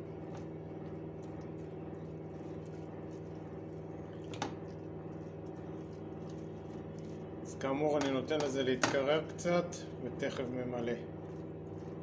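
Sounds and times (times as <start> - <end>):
spatula stirring rice in pot: 0.0 - 8.5, 11.0 - 12.0
steady hum: 0.0 - 12.0.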